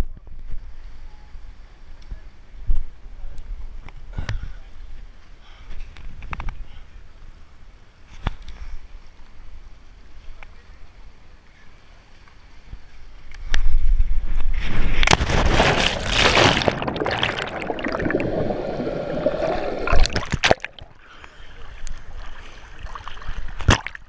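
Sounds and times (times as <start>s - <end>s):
rush of air: 14.5s - 21.1s
loud splash into water: 15.0s - 20.9s, 23.6s - 24.0s
underwater bubbling and churning: 15.0s - 24.0s
lake water sloshing: 15.1s - 24.0s.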